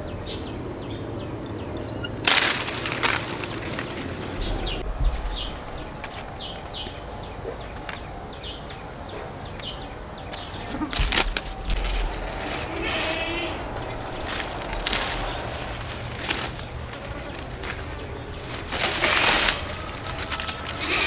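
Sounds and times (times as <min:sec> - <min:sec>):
high bird chirps: 0:00.0 - 0:02.2
steady background hiss: 0:00.0 - 0:21.0
loud rustling noise: 0:02.2 - 0:07.1, 0:10.3 - 0:21.0.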